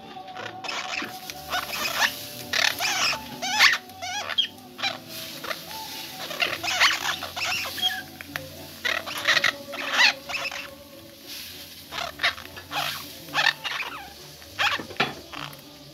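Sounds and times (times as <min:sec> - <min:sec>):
birds crunching a chip: 0:00.4 - 0:15.9.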